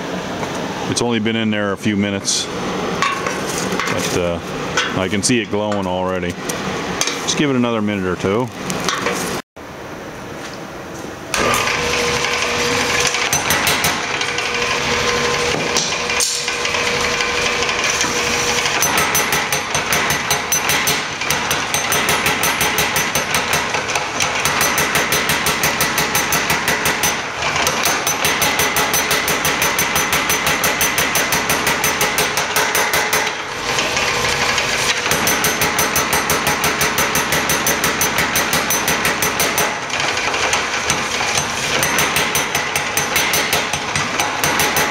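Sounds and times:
power hammer blows on steel: 11.4s - 44.9s.

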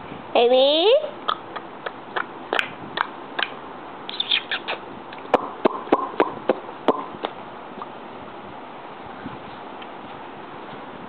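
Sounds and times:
mouth clicks and squeaks: 1.2s - 7.9s.

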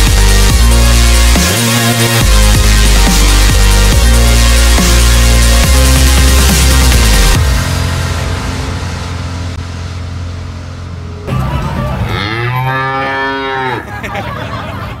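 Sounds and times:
electronic music with bass: 0.0s - 15.0s
cow mooing: 12.0s - 13.9s.

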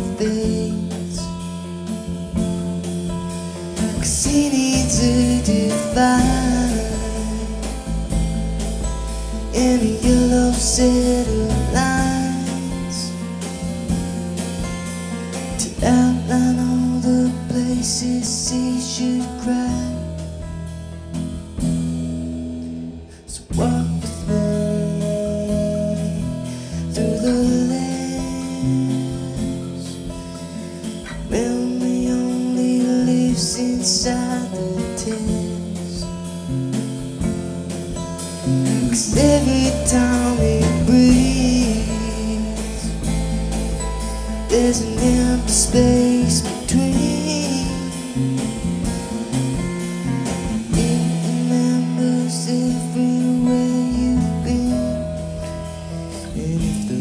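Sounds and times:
person singing: 0.0s - 1.6s, 3.7s - 8.2s, 9.5s - 13.5s, 15.5s - 20.2s, 23.2s - 30.2s, 31.1s - 36.2s, 38.7s - 48.4s, 50.5s - 57.0s
drum kit with cymbals: 0.0s - 57.0s
electric bass: 0.0s - 57.0s.

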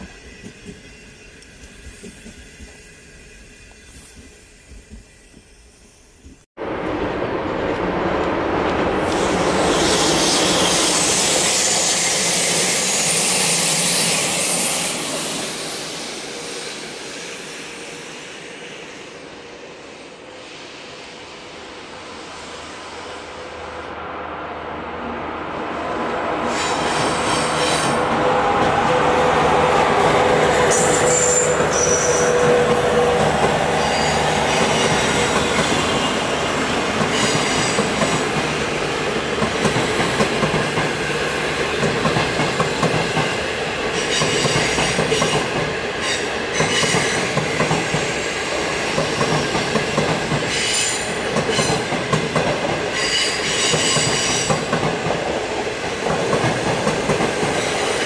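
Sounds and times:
train wheels clacking on rails: 0.0s - 5.5s, 26.5s - 58.0s
high wheel squeals: 30.6s - 36.0s.

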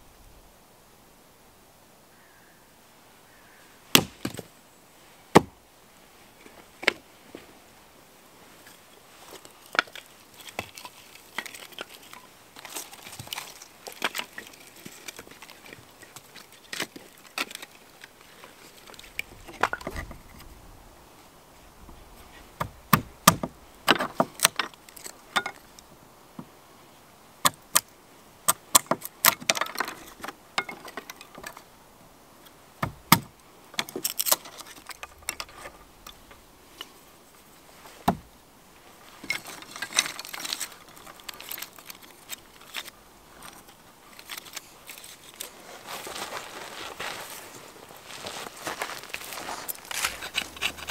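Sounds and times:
hatchet chopping log: 3.9s - 4.4s, 5.3s - 5.6s, 22.6s - 24.6s, 32.8s - 33.3s.

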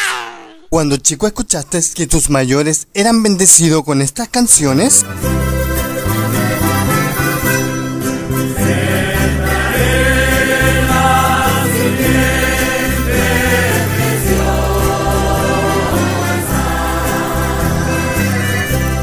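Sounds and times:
rock music with singing: 8.5s - 18.3s.

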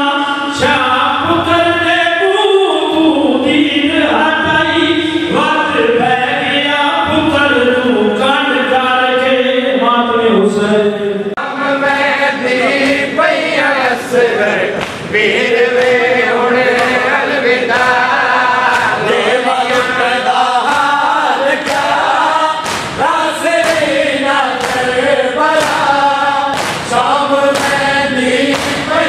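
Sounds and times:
men chanting in unison: 11.4s - 29.0s
hands slapping chests: 14.8s - 29.0s.

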